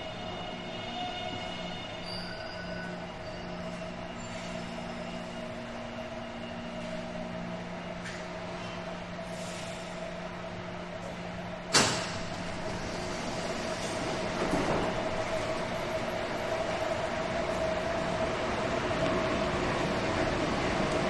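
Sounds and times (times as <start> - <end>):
electric train hum and whine: 0.0 - 21.0
loud hiss of air: 9.3 - 10.0.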